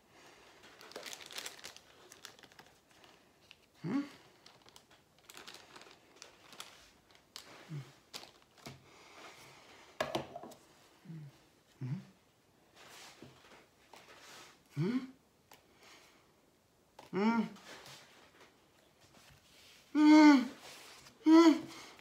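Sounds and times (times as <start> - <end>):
plastic bag crinkling: 0.4 - 8.8.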